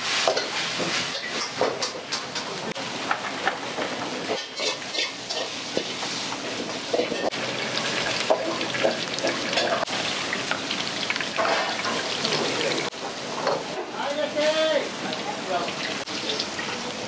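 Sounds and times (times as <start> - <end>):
ladle scraping a wok: 0.0 - 2.6, 3.7 - 10.2, 11.3 - 13.8
food sizzling in a wok: 0.0 - 17.0.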